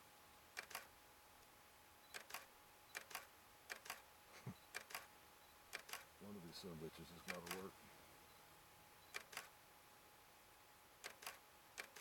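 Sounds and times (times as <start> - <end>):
camera shutter clicks: 0.6 - 0.9, 2.1 - 4.1, 4.7 - 5.1, 5.7 - 6.1, 7.3 - 7.6, 9.1 - 9.6, 11.0 - 12.0.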